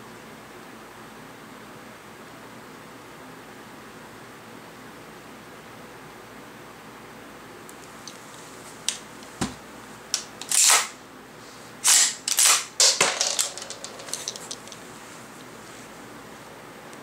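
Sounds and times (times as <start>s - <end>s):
sliding clacks: 13.0s - 14.8s
metallic clicks of rifle action: 13.4s - 14.8s.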